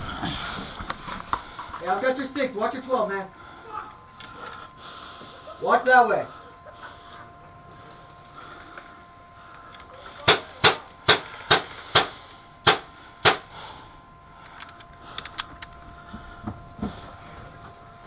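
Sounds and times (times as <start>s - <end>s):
airsoft rifle shots: 10.2s - 13.5s.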